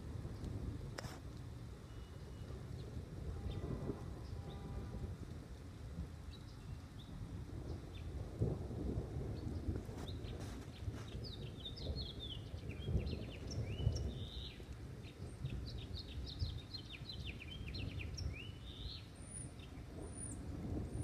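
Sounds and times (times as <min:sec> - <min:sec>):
thunder rumbling: 0:02.5 - 0:06.2, 0:07.1 - 0:21.0
songbird chirping: 0:09.4 - 0:21.0.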